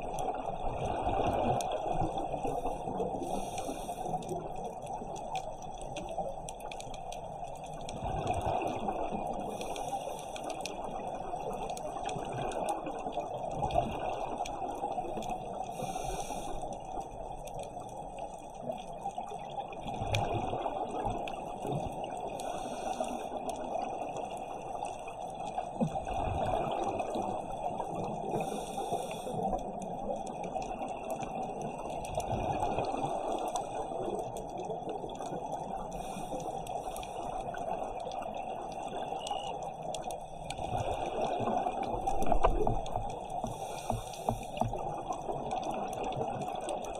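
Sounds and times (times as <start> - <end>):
underwater watery hiss: 2.4 - 5.1, 9.3 - 10.9, 15.6 - 16.9, 22.2 - 25.5, 26.6 - 29.8, 35.6 - 45.2.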